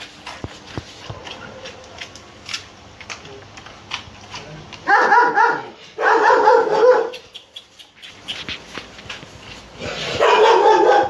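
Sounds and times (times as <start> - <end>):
dog barking rapidly: 4.8 - 7.3, 10.0 - 11.0.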